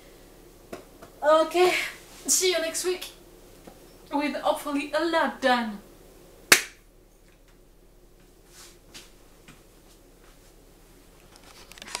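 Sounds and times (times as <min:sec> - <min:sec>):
hand clap: 0:06.5 - 0:06.8.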